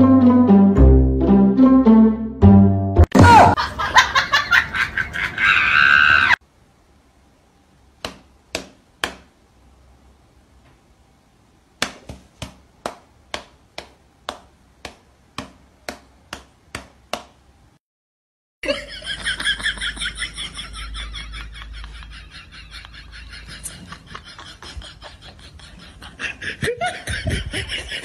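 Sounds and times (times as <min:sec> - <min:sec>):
loud wavering cry: 0:05.4 - 0:06.4
cat paw slapping a hand: 0:08.0 - 0:09.3, 0:11.8 - 0:17.3.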